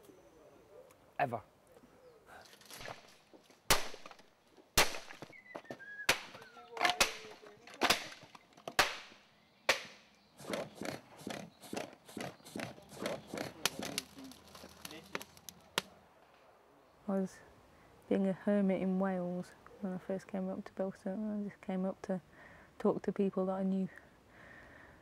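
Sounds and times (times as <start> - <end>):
loud sharp cracks: 2.7 - 5.4, 6.1 - 10.9.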